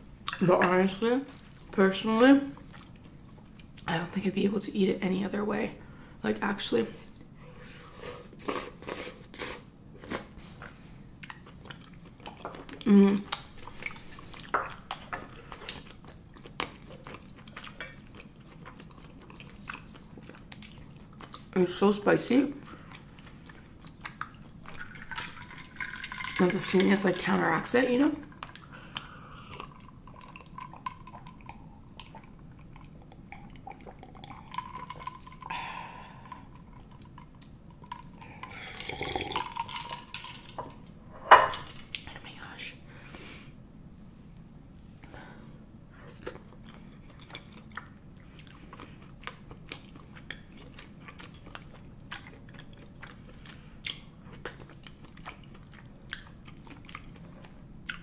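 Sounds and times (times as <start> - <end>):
person chewing food: 7.9 - 21.6, 22.6 - 26.4, 28.3 - 40.9, 46.0 - 58.0
liquid sloshing: 23.4 - 29.0, 29.6 - 35.5
sipping and gulping drink: 37.9 - 40.5.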